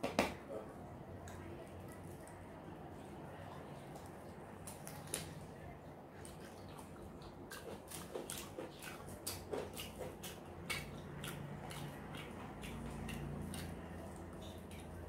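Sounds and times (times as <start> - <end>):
chewing: 6.1 - 15.0
wet mouth clicks and smacks: 6.3 - 15.0.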